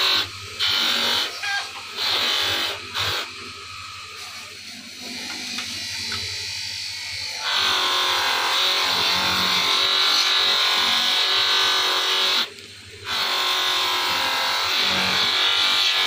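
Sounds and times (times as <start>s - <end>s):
buffing wheel polishing knife: 0.0s - 3.4s
motor humming: 0.0s - 16.0s.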